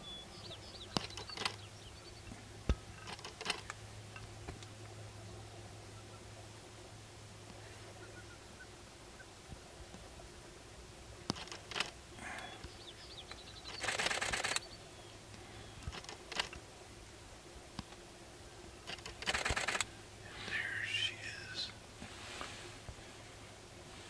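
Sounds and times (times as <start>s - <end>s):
grouse foot-stamping and feather rattling: 0.9s - 1.6s, 2.7s - 4.7s, 11.2s - 12.4s, 13.3s - 14.6s, 15.8s - 16.6s, 18.8s - 19.9s
short clicks: 1.0s - 1.6s, 13.3s - 14.7s, 18.9s - 19.9s.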